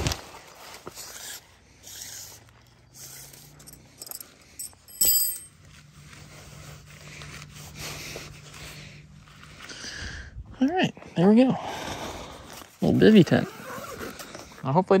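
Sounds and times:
tent fabric rustling and scraping: 0.0 - 3.7, 5.5 - 9.8, 12.3 - 14.7
sharp ringing clink: 3.6 - 5.6.

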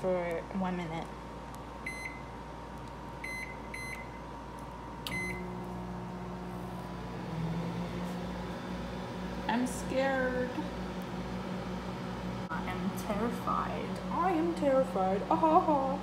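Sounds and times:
microwave humming: 0.0 - 16.0
microwave keypad beeping: 1.8 - 2.3, 3.2 - 4.2, 5.1 - 5.6.

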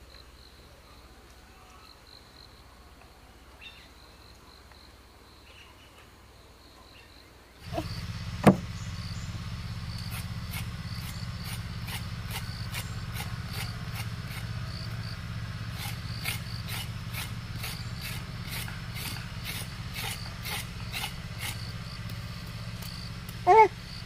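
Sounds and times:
steady low hum: 7.6 - 24.0.

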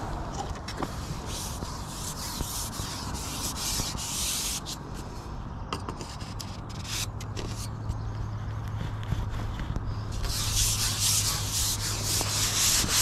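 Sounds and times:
fabric rubbing on microphone: 8.8 - 13.0.

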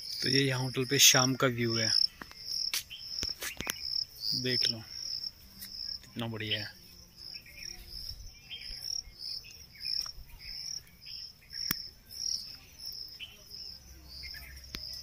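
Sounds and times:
crickets chirping: 0.0 - 15.0
faint bird chirps: 0.0 - 15.0.

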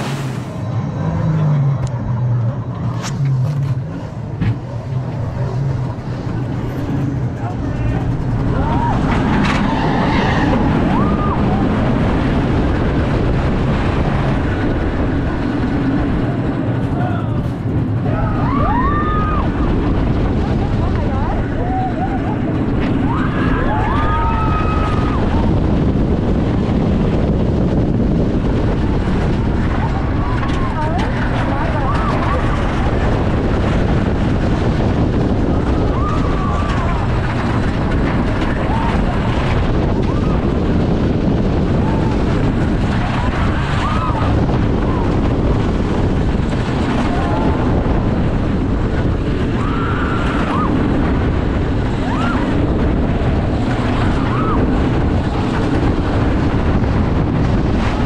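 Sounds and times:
roller coaster wheels rumbling: 0.0 - 58.0
track clacking: 0.0 - 58.0
wind rushing over microphone: 0.0 - 58.0
riders screaming: 7.8 - 11.8, 18.0 - 19.8, 21.1 - 25.7, 35.5 - 40.6, 41.6 - 45.6, 46.7 - 48.4, 49.2 - 55.6.

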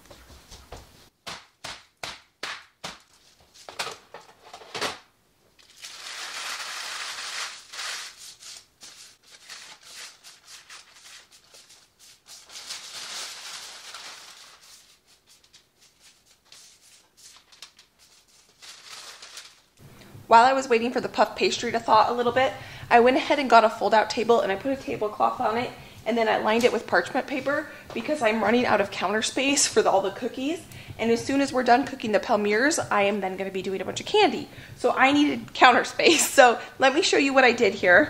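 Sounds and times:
parchment paper rustling: 5.6 - 19.8.

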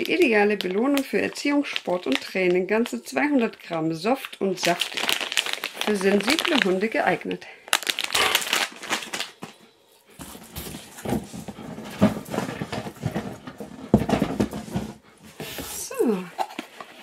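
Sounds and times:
plastic snack bag crinkling: 0.0 - 9.8
rustling and handling noise: 0.0 - 17.0.

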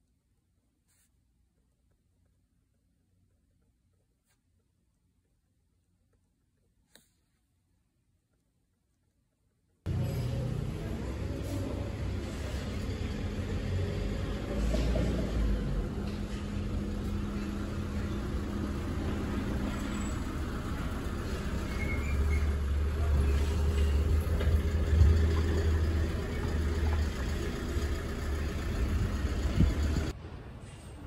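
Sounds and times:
vehicle engine running: 9.9 - 30.1
road traffic rumble: 9.9 - 30.6.

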